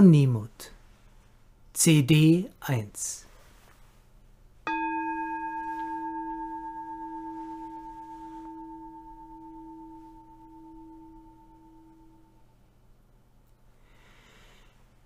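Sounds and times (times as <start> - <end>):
singing bowl ringing: 4.6 - 12.7.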